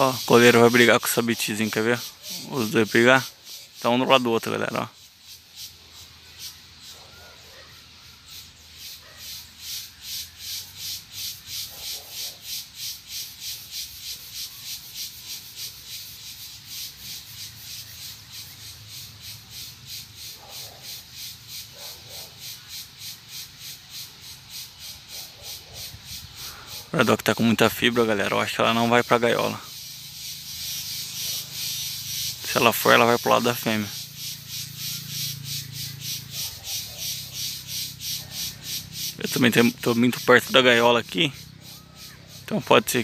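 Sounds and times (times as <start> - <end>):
faint short bird calls: 0.0 - 4.8, 40.7 - 42.7
insect pulsing buzz: 0.0 - 7.0, 8.0 - 42.6.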